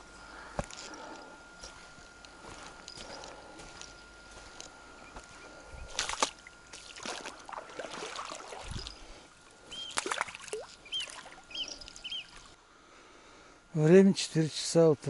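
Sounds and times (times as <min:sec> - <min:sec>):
water sloshing: 0:05.8 - 0:12.6
bird chirping: 0:09.7 - 0:10.1, 0:10.8 - 0:12.5.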